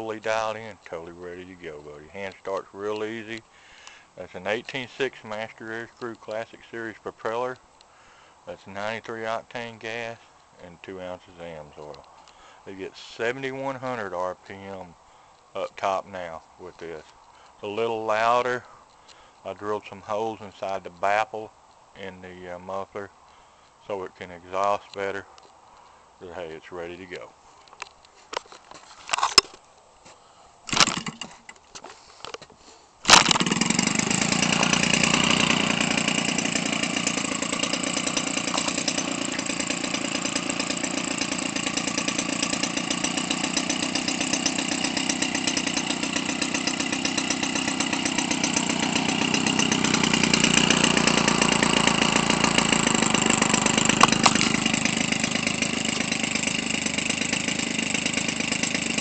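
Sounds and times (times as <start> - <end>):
two-stroke engine running: 30.7 - 31.3, 33.1 - 59.0
engine sputters: 33.1 - 59.0.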